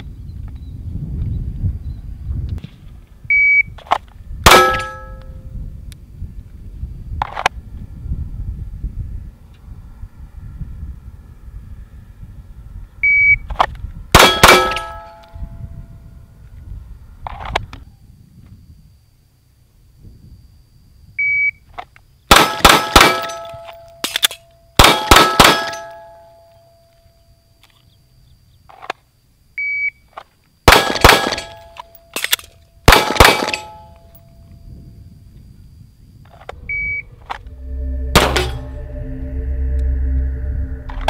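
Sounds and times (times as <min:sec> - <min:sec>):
steel targets ringing: 0:04.5 - 0:05.4, 0:14.2 - 0:15.2, 0:22.3 - 0:24.1, 0:24.8 - 0:26.4, 0:33.0 - 0:34.0, 0:37.6 - 0:38.8
pistol shots: 0:22.3 - 0:23.4, 0:24.8 - 0:25.8, 0:30.7 - 0:31.6, 0:32.9 - 0:33.7.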